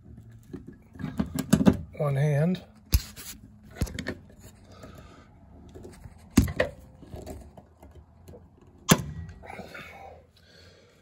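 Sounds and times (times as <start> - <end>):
handling and squeezing noise: 2.8 - 8.8.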